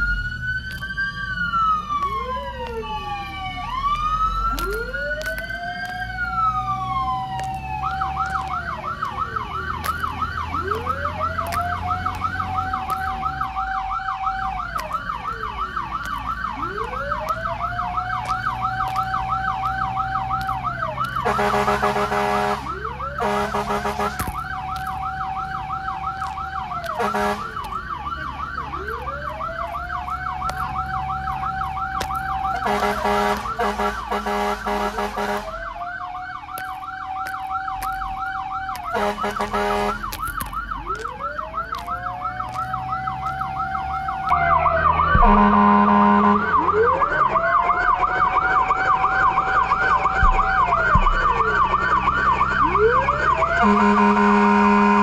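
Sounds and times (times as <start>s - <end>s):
engine rumbling: 0.0s - 55.0s
siren wail: 0.0s - 55.0s
siren warbling yelp: 0.0s - 55.0s
deep horn blasts: 21.2s - 24.4s, 26.9s - 27.6s, 32.4s - 35.7s, 38.9s - 40.2s, 45.1s - 46.6s, 53.6s - 55.0s.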